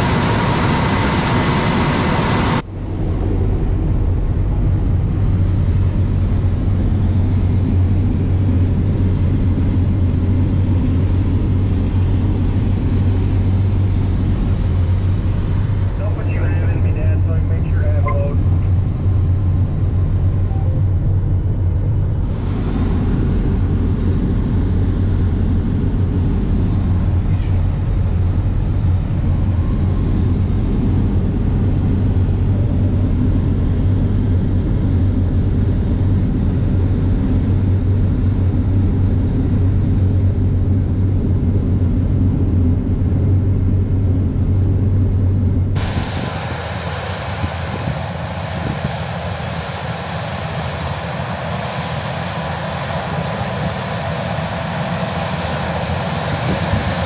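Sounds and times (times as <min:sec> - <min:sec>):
harvest machinery engine rumble: 0:02.6 - 0:51.6.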